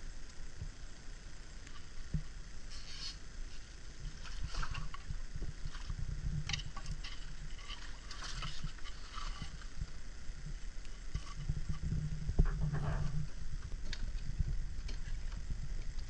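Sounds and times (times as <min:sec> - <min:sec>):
low rumble: 0:03.3 - 0:16.0.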